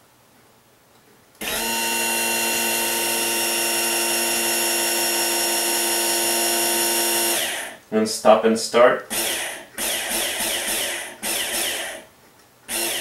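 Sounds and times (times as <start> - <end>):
actuator motor whining: 1.4 - 7.8, 9.1 - 12.1, 12.7 - 13.0.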